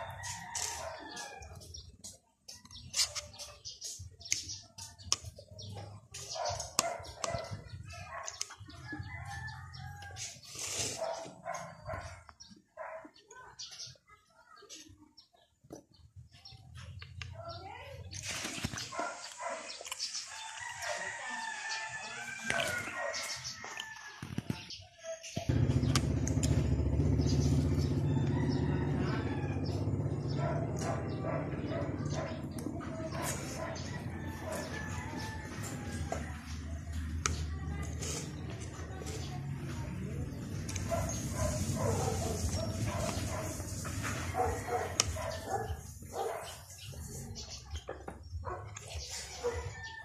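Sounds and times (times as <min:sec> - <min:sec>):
birds chirping: 0:00.0 - 0:50.0
motorcycle engine rumbling: 0:25.4 - 0:49.9.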